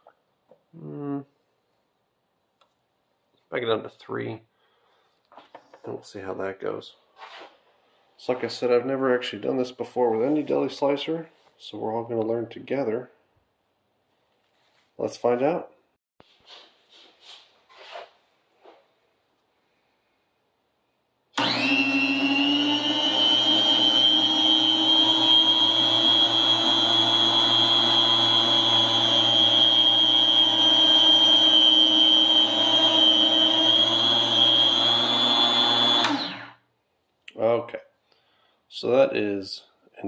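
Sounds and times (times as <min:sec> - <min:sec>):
electric food slicer running: 0:21.4 - 0:36.6.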